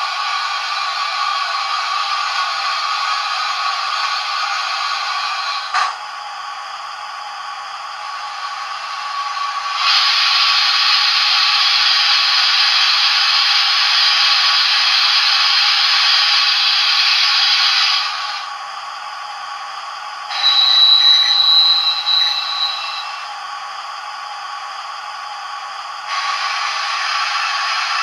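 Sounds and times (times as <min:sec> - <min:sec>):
hiss with high steady tone: 0:06.4 - 0:28.0
steam hiss from small speaker: 0:08.0 - 0:18.6, 0:20.2 - 0:28.0.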